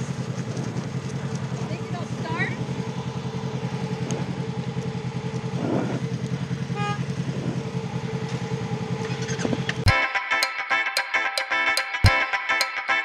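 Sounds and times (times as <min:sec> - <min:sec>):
motorcycle engine idling: 0:00.0 - 0:11.2.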